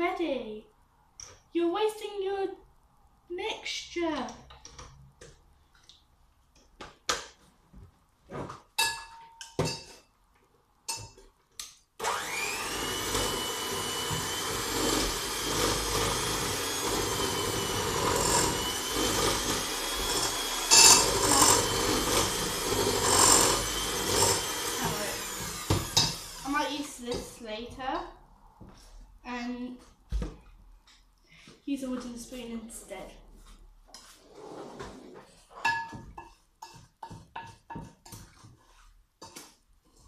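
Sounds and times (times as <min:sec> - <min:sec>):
electric mixer whining: 0:12.0 - 0:26.7.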